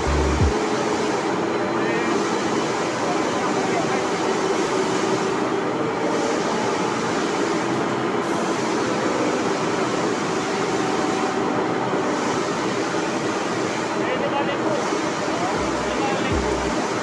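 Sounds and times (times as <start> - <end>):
machinery rumbling: 0.0 - 0.6, 15.3 - 17.0.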